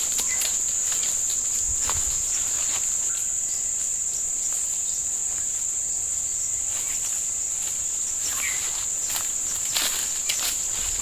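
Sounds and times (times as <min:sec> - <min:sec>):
footsteps on dry leaves: 0:00.0 - 0:03.5, 0:06.6 - 0:11.0
high-pitched insect drone: 0:00.0 - 0:11.0.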